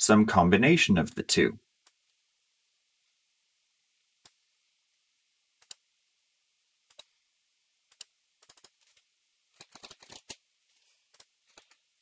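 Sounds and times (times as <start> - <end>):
computer mouse clicks: 5.6 - 5.8, 6.9 - 7.1, 7.9 - 9.0.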